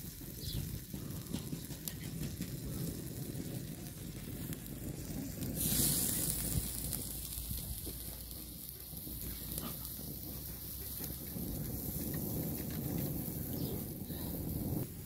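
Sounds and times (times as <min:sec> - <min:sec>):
low rumble: 0:02.6 - 0:15.0
food sizzling in a pan: 0:05.6 - 0:15.0.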